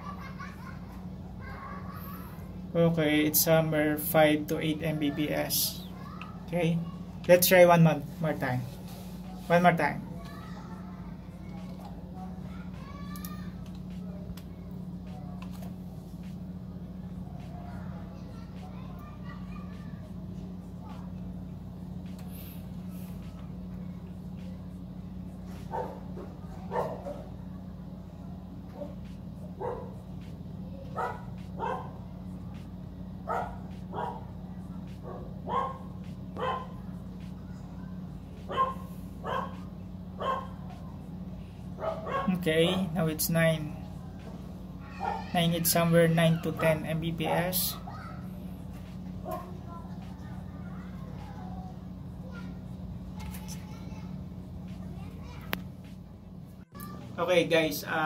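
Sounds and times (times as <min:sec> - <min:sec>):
steady low hum: 0:00.0 - 0:58.0
dog barking: 0:25.7 - 0:27.3, 0:29.6 - 0:29.9, 0:31.0 - 0:32.0, 0:33.3 - 0:34.3, 0:35.0 - 0:36.8, 0:38.5 - 0:40.6, 0:41.8 - 0:42.3, 0:44.9 - 0:45.3.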